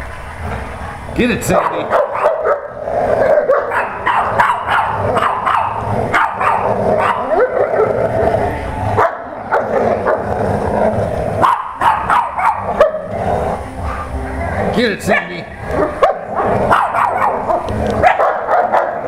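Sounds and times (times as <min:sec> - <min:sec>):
dogs barking and yipping: 0:01.5 - 0:14.4, 0:15.0 - 0:19.0.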